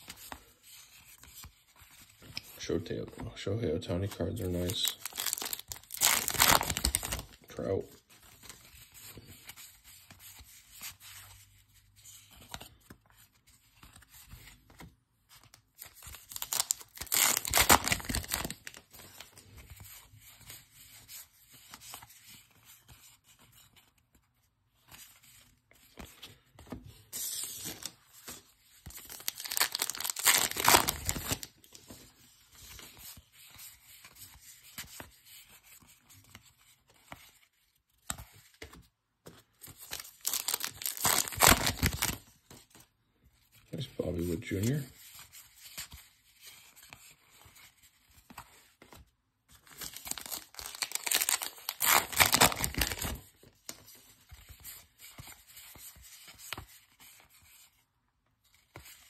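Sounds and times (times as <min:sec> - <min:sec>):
cards rubbing and shuffling: 0:03.9 - 0:23.9, 0:24.8 - 0:42.8, 0:49.6 - 0:57.8
card wrappers tearing: 0:04.0 - 0:07.7, 0:15.9 - 0:18.8, 0:28.9 - 0:31.5, 0:39.8 - 0:42.2, 0:49.6 - 0:53.2.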